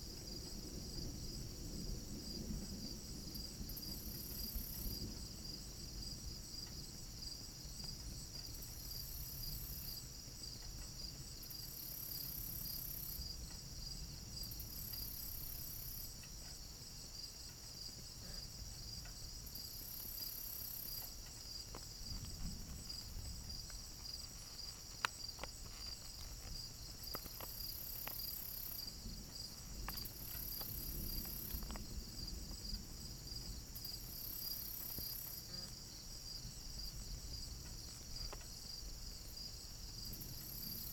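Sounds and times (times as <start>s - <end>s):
crickets chirping: 0.0s - 40.9s
high insect buzz: 8.5s - 40.9s.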